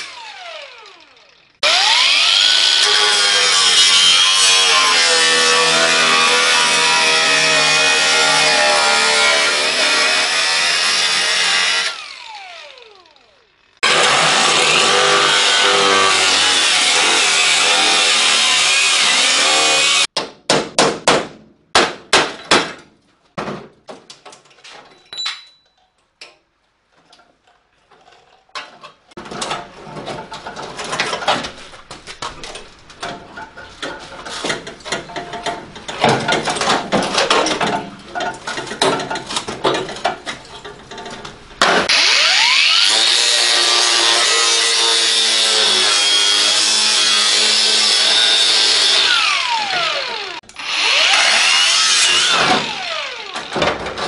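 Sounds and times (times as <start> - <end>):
angle grinder cutting steel: 0.0 - 20.1, 41.8 - 53.6.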